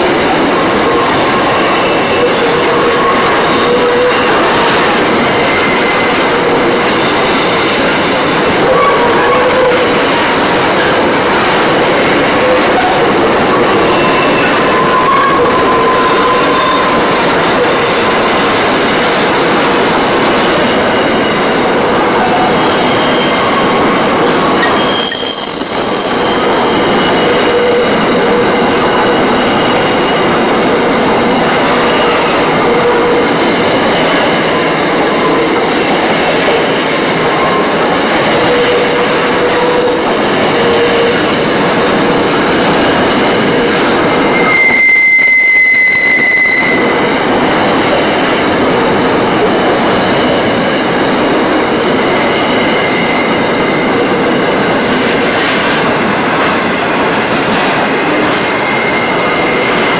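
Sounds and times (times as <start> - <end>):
freight train wheels roaring: 0.0 - 59.9
high wheel squeals: 12.4 - 18.4, 20.5 - 30.5, 38.4 - 41.2, 44.2 - 47.0.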